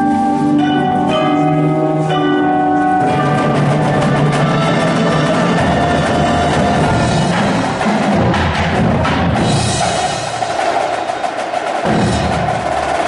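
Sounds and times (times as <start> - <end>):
mallet keyboard chords: 0.0 - 10.2
drums and cymbals striking: 3.0 - 13.0.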